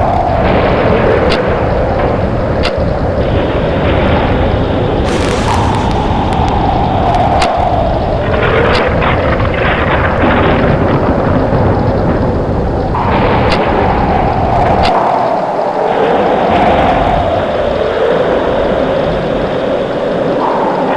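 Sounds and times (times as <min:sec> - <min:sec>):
howling wind rumble: 0:00.0 - 0:20.9
sharp cracks: 0:05.0 - 0:09.7.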